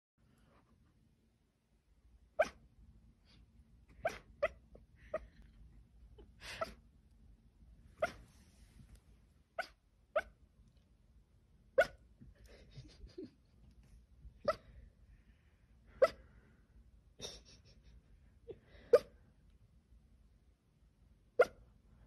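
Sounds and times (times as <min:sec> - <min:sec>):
dog barking and yipping: 0:02.4 - 0:02.6, 0:03.9 - 0:05.4, 0:08.0 - 0:08.2, 0:09.6 - 0:10.4, 0:11.8 - 0:12.0.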